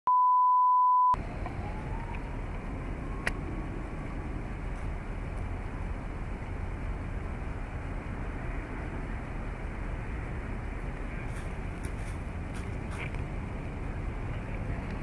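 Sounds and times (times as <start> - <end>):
test tone beep: 0.0 - 1.2.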